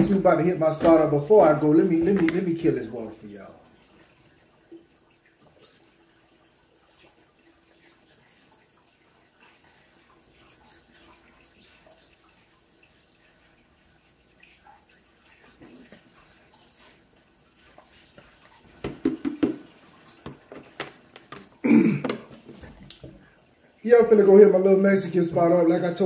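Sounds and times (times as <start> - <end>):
plastic jug handled: 0.0 - 3.2, 18.1 - 23.3
person gulping water: 20.4 - 23.4.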